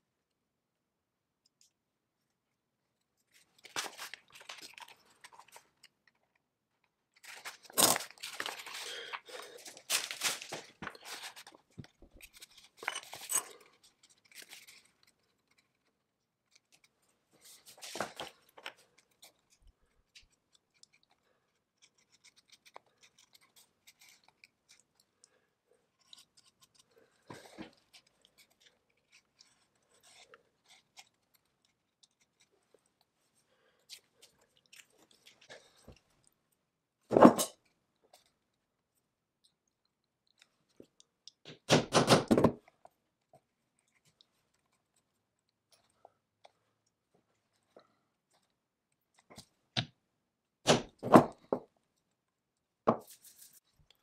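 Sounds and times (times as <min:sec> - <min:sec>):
crunching and scraping: 0:03.3 - 0:06.4, 0:07.0 - 0:36.5.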